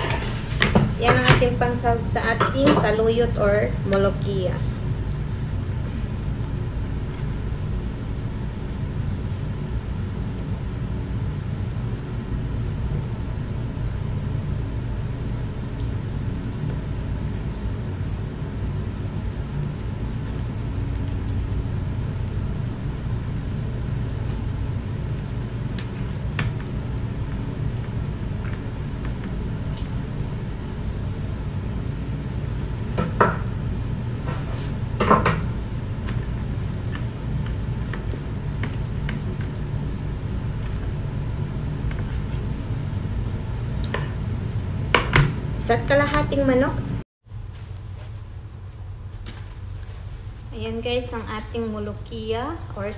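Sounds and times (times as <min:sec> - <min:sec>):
low mechanical hum: 0:00.0 - 0:52.9.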